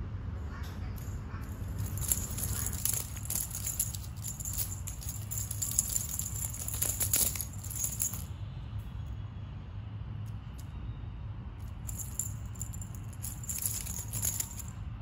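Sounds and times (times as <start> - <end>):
cat toy rattling on tiles: 1.5 - 8.3, 11.7 - 14.8.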